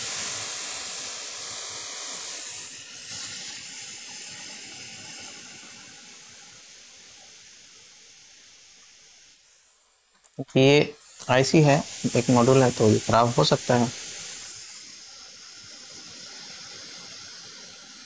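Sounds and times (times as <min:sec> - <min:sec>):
hot air blower hissing: 0:00.0 - 0:09.8, 0:10.4 - 0:18.0.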